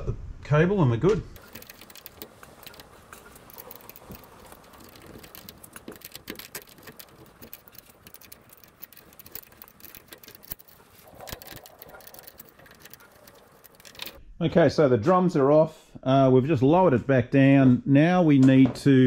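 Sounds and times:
hand tool clicking and scraping metal: 1.4s - 14.2s.

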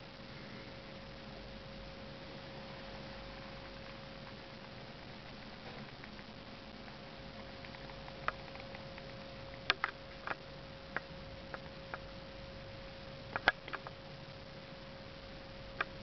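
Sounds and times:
faint hum-like tone: 0.0s - 16.0s
steady hiss: 0.0s - 16.0s
small clicks and ticks: 3.4s - 12.1s, 13.3s - 14.0s, 15.7s - 16.0s.

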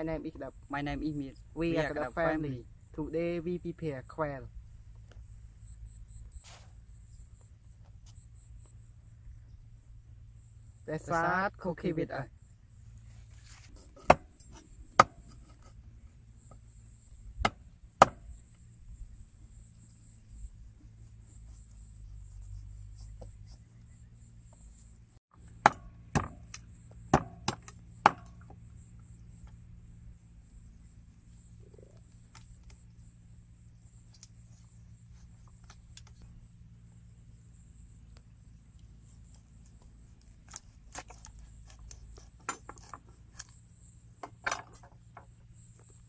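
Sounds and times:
knife chopping on wooden board: 13.9s - 14.3s, 27.1s - 28.3s.

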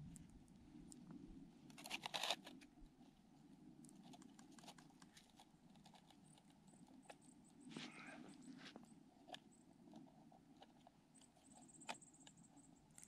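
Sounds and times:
rustling and small clicks: 3.8s - 13.0s.

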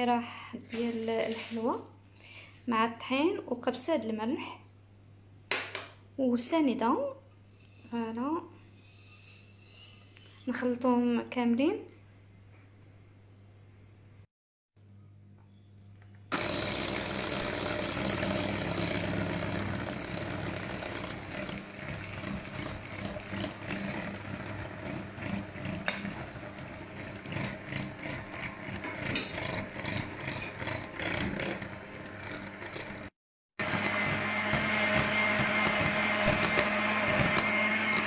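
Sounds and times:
beaters churning batter: 16.3s - 38.0s
electric hand mixer whirring: 16.3s - 38.0s.

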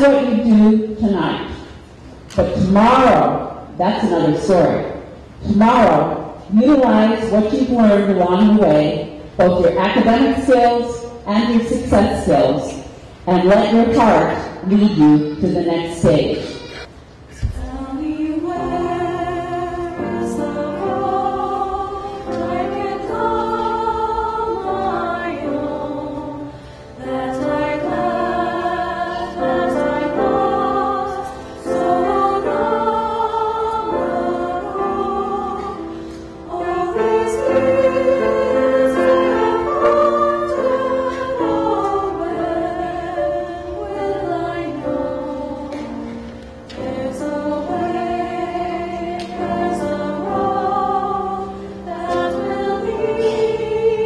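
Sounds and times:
mixed choir singing: 16.3s - 54.0s.

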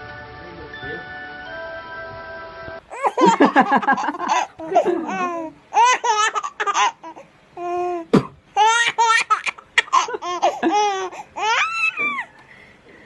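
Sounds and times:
baby giggling: 2.9s - 12.4s.

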